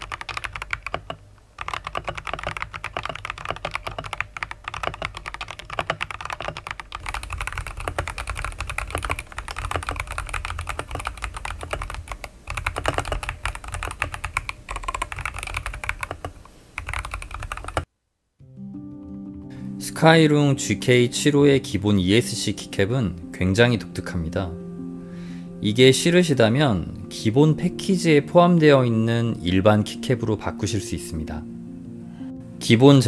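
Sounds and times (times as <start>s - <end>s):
fast mechanical keyboard typing: 0.0s - 17.9s
background music: 18.4s - 33.0s.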